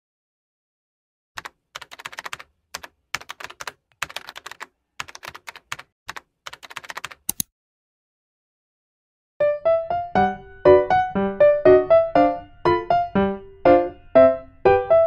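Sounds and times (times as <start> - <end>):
keyboard typing clicks: 1.4 - 7.5.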